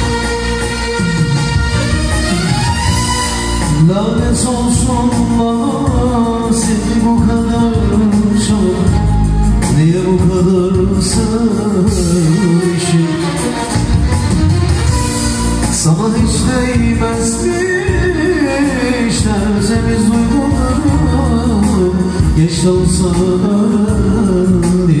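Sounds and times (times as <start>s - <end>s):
keyboard accompaniment: 0.0s - 25.0s
man singing into a microphone: 3.5s - 13.9s, 15.6s - 25.0s.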